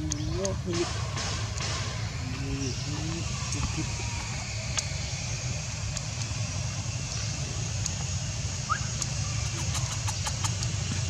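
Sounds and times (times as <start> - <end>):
high hiss: 0.0 - 11.0
low rumble: 0.0 - 11.0
faint clicks: 4.7 - 4.9, 5.9 - 6.4, 7.7 - 8.1, 9.0 - 11.0.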